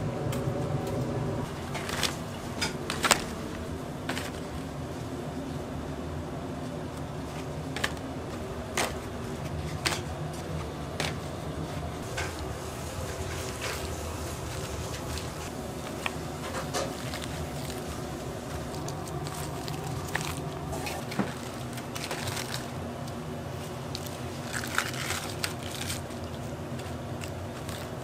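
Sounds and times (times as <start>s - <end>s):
kitchen equipment humming: 0.0s - 28.0s.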